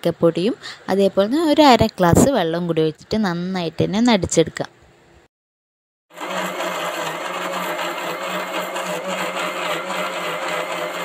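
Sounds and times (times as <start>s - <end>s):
mixer grinder running: 6.1s - 11.0s.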